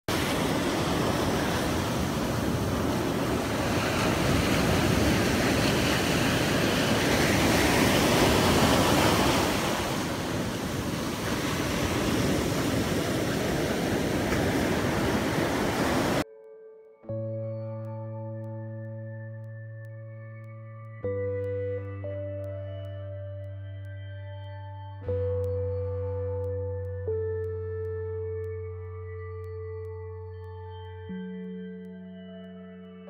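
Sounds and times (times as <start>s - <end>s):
ocean surf breaking on beach: 0.1s - 16.2s
wind rumbling on microphone: 0.1s - 16.2s.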